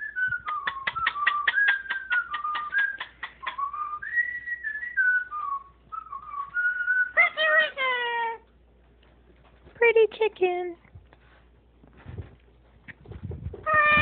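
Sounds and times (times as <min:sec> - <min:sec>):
person whistling a tune: 0:00.0 - 0:07.2.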